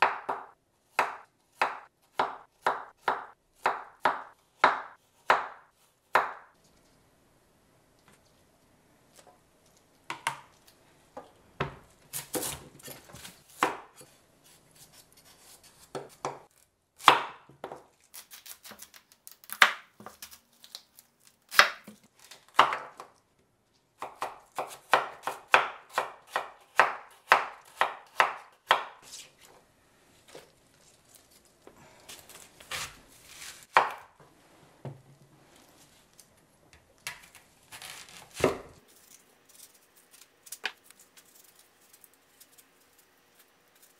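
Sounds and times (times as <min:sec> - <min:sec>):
knife chopping on wooden board: 0:15.7 - 0:17.8, 0:24.0 - 0:29.0, 0:32.7 - 0:34.1, 0:38.3 - 0:38.8
knife cutting through pear: 0:32.1 - 0:34.1.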